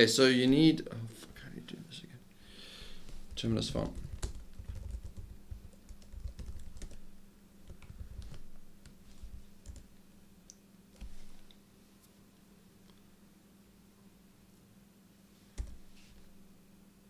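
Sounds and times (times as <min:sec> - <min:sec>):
laptop keyboard typing: 0:03.3 - 0:09.9, 0:15.6 - 0:15.8.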